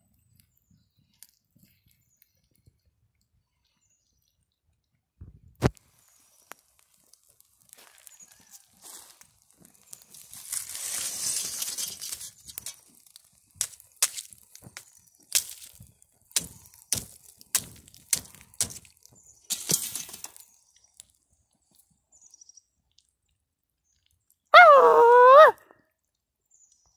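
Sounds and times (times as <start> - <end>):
fire cracking and popping: 0.1 - 3.4, 5.2 - 22.0.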